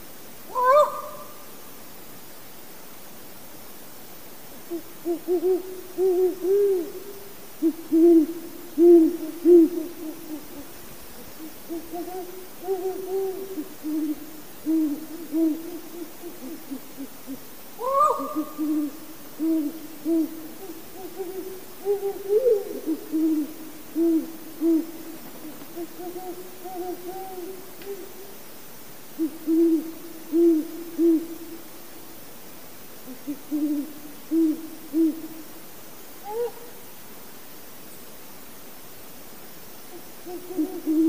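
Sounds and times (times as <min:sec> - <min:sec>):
higher rising owl call: 0:00.5 - 0:01.4, 0:04.7 - 0:07.0, 0:07.6 - 0:10.7, 0:11.4 - 0:28.2, 0:29.2 - 0:31.4, 0:33.0 - 0:35.2, 0:36.2 - 0:36.8, 0:39.9 - 0:41.0
owl hooting: 0:00.5 - 0:01.5, 0:04.7 - 0:28.3, 0:29.2 - 0:31.5, 0:33.0 - 0:35.4, 0:36.2 - 0:36.8, 0:39.9 - 0:41.0.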